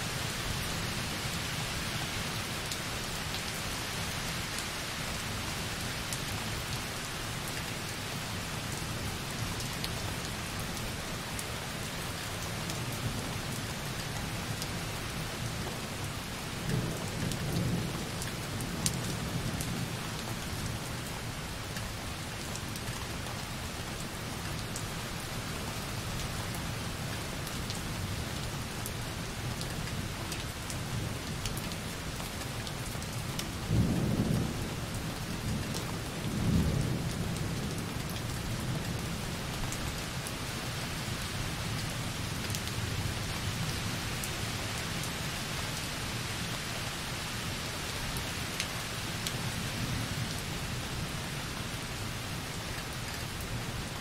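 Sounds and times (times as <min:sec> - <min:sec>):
light rain on window: 0:00.0 - 0:54.0.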